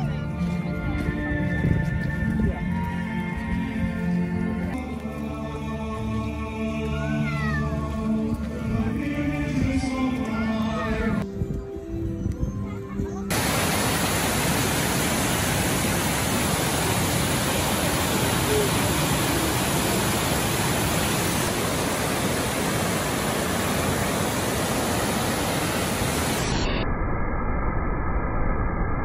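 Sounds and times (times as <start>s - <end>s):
waterfall rushing: 13.3s - 26.7s.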